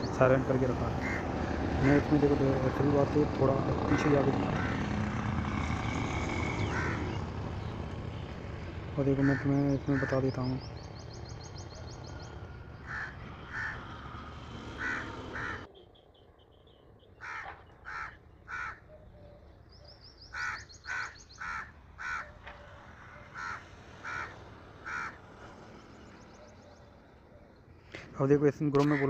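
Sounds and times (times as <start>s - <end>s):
crow cawing: 1.0s - 2.1s, 3.9s - 5.6s, 6.6s - 7.2s, 9.1s - 10.3s, 12.8s - 15.7s, 17.2s - 18.9s, 20.3s - 25.5s.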